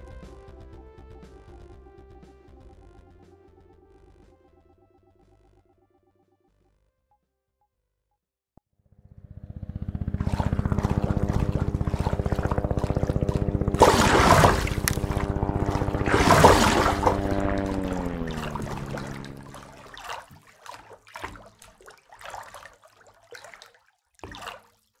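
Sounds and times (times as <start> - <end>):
helicopter rotor chop: 9.0 - 20.4
rushing surges: 13.7 - 20.0.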